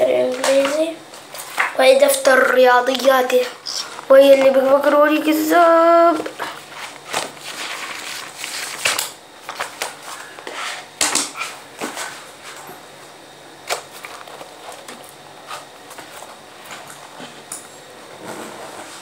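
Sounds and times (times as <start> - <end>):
paper rustling: 6.1 - 10.8, 13.6 - 17.5.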